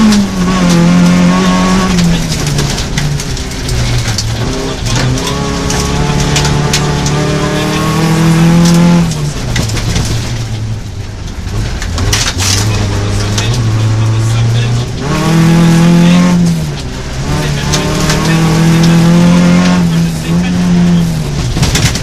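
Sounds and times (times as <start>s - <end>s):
gravel striking car underside: 0.0s - 15.3s, 20.8s - 22.0s
rally car engine revving: 0.0s - 22.0s.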